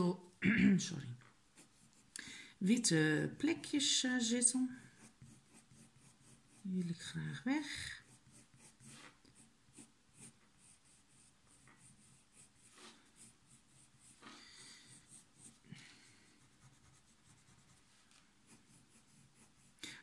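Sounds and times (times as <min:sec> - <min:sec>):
pencil scratching on paper: 0:01.5 - 0:02.1, 0:03.8 - 0:19.9.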